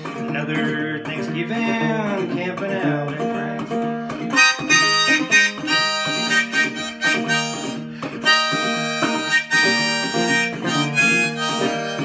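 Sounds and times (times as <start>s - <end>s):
resonator guitar: 0.0s - 12.0s
harmonica melody: 3.8s - 12.0s.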